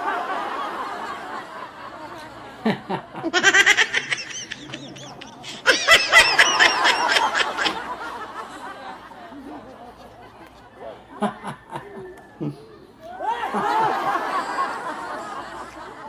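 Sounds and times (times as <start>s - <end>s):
high-pitched giggling: 3.2s - 7.9s.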